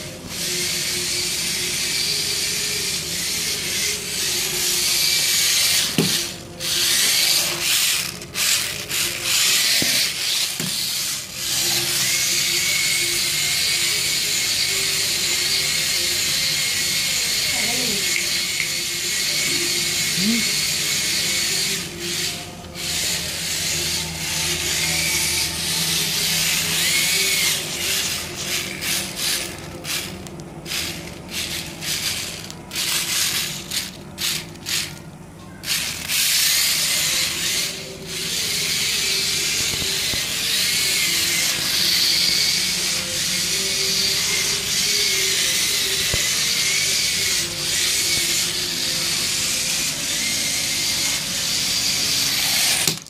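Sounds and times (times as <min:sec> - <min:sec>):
small gear motors whirring: 0:00.0 - 0:53.0.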